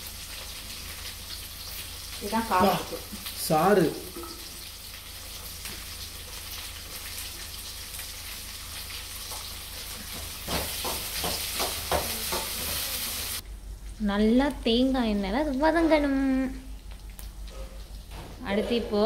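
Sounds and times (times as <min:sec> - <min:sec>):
onions sizzling in a pan: 0:00.0 - 0:13.4.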